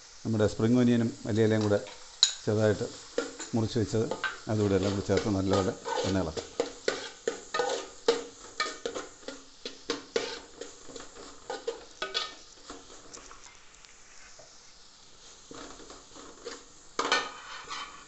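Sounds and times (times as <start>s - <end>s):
faint sizzle: 0.0s - 18.0s
metal spatula scraping pan: 3.0s - 13.1s, 15.5s - 18.0s.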